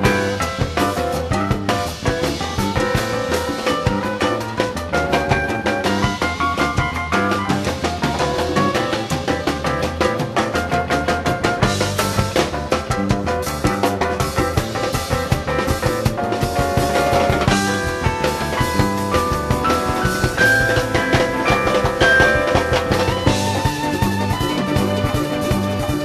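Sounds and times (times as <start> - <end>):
bass: 0.0 - 26.0
drum kit: 0.0 - 26.0
hand percussion: 0.0 - 26.0
keyboards: 0.0 - 26.0
lead line of long held notes: 17.6 - 23.6.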